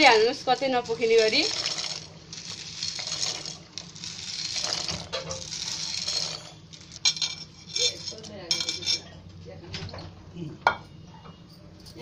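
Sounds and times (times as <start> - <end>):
boiling water: 0.0 - 7.7
dry pasta sliding off a plate: 1.0 - 7.1.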